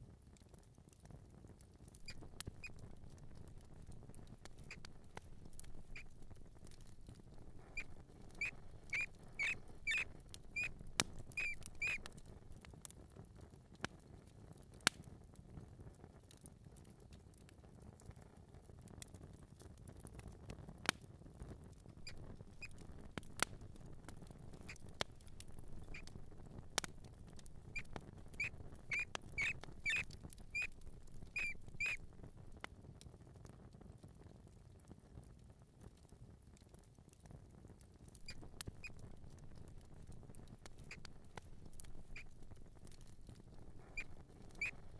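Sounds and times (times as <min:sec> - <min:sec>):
mouse squeaking: 0:01.9 - 0:12.3, 0:22.0 - 0:32.1, 0:38.1 - 0:44.9.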